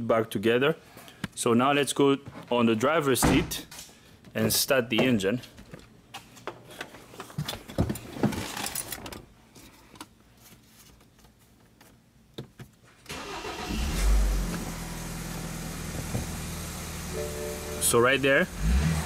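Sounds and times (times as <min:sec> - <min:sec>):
car engine starting and idling: 0:13.1 - 0:19.0.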